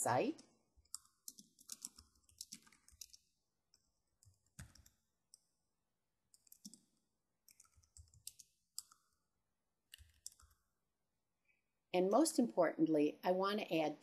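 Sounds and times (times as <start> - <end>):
keyboard keys clicking: 0.8 - 3.2, 4.2 - 5.0, 6.4 - 6.8, 7.5 - 9.0.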